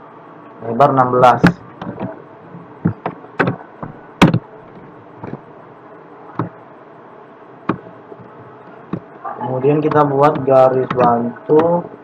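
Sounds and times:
steady low hiss: 0.0 - 12.0
keyboard and mouse clicks: 7.7 - 9.1, 9.8 - 11.8.

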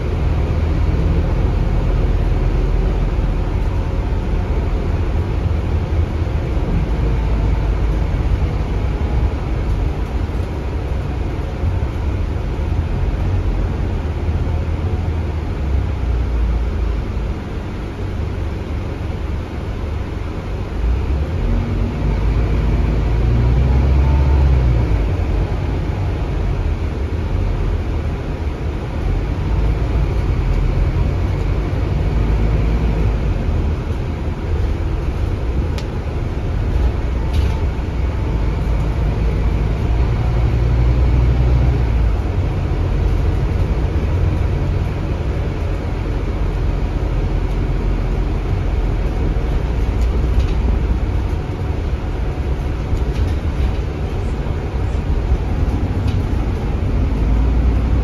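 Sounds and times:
bus diesel engine running: 0.0 - 58.0
road noise: 0.0 - 58.0.

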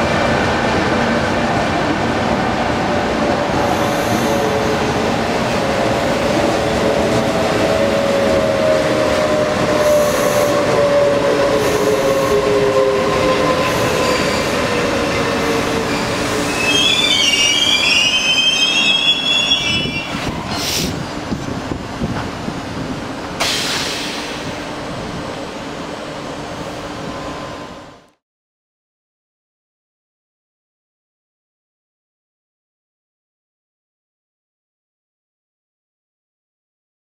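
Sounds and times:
train wheels squealing: 9.3 - 20.9.

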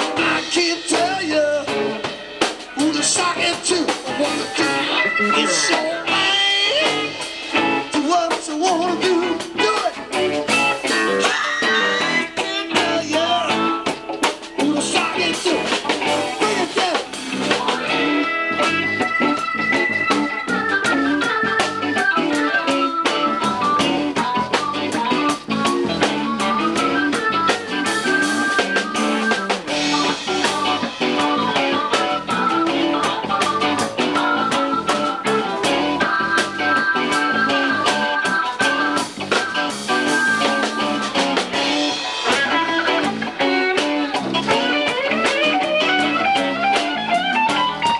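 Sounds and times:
electric guitar lead: 0.0 - 47.9
keyboard: 0.0 - 47.9
drum hits: 23.1 - 32.2.

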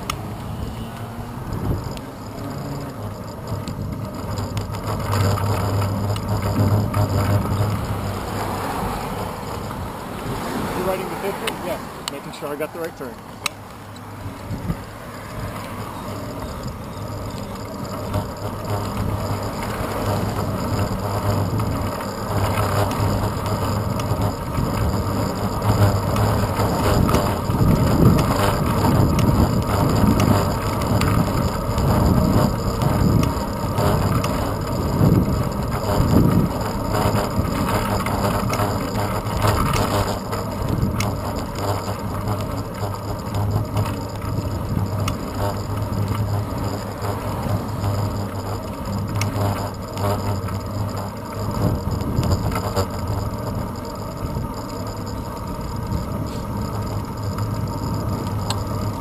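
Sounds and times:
wind buffeting microphone: 0.0 - 2.1, 14.1 - 17.5, 18.1 - 42.4
bicycle tyres rumbling on road: 0.0 - 59.0.

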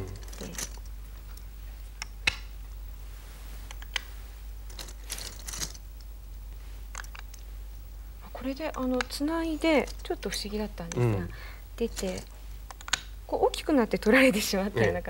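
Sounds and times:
game stones clicking on board: 0.0 - 0.9, 6.9 - 7.4, 8.5 - 11.1, 11.8 - 13.1
low steady hum: 0.0 - 15.0.

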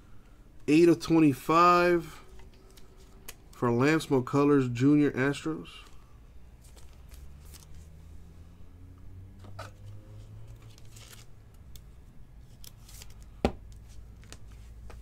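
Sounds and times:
plastic rustles and scrapes: 9.4 - 11.4.

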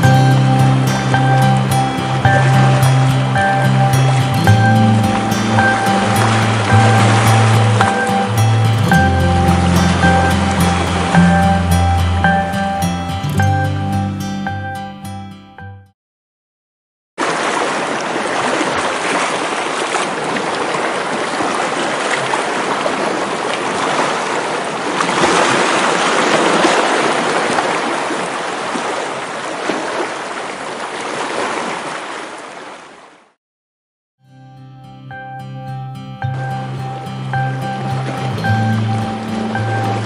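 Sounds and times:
surf breaking on beach: 1.0 - 11.7, 17.2 - 32.6.

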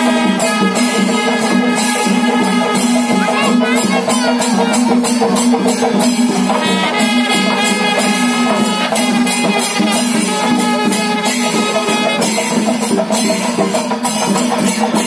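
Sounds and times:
jingling percussion: 0.0 - 15.0.

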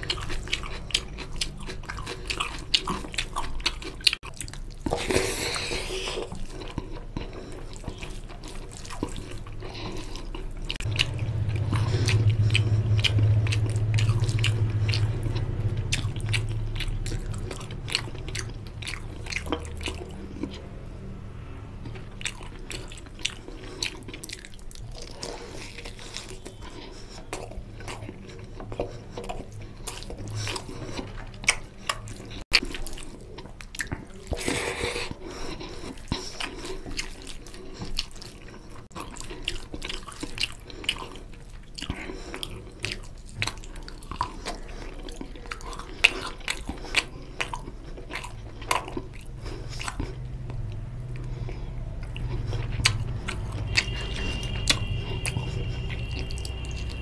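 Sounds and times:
wet chewing and lip smacking: 0.0 - 21.1, 21.8 - 57.0
low hum: 10.5 - 23.6.

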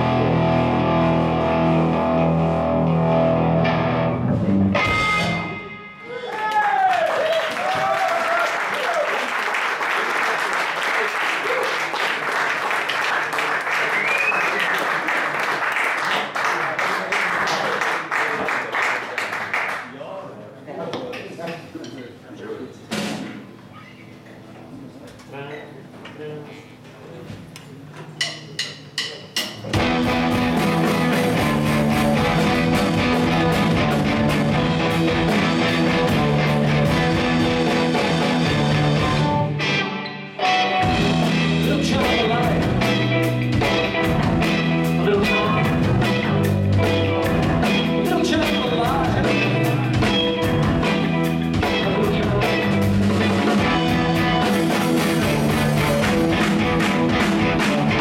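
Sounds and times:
live rock band playing: 0.0 - 6.2, 28.5 - 58.0.

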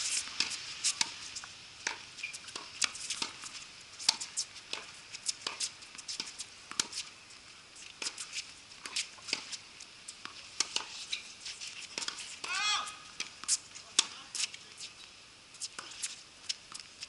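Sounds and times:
footsteps on wet hard court: 0.0 - 7.2, 7.8 - 17.0
racket striking tennis ball: 0.2 - 1.2, 1.8 - 7.1, 8.0 - 9.6, 10.2 - 14.2.

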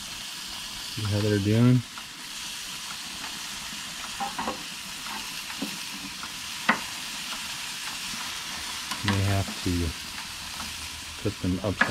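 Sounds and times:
skewers sizzling on a grill: 0.0 - 11.9
skewers clicking and knocking: 8.9 - 9.5.

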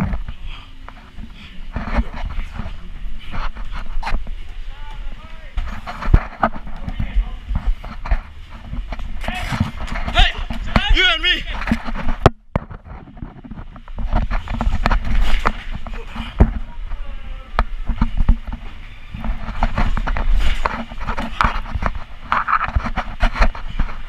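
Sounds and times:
faint voices: 15.8 - 19.4.

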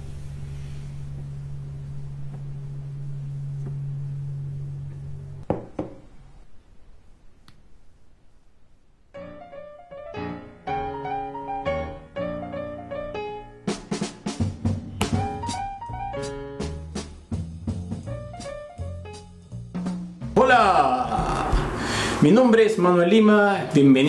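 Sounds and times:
steady low hum: 0.0 - 9.1
piano music: 9.2 - 23.9.

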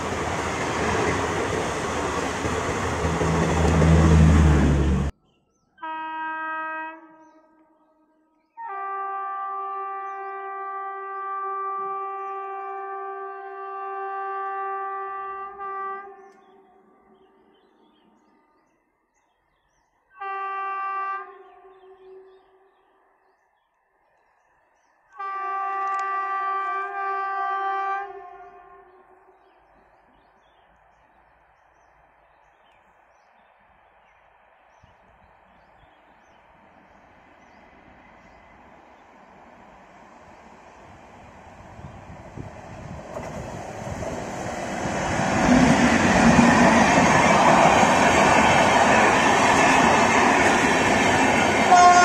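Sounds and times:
distant train rumble: 0.0 - 5.2, 25.2 - 52.0
train horn blast: 5.8 - 17.4, 20.2 - 22.8, 25.2 - 29.5, 51.6 - 52.0.

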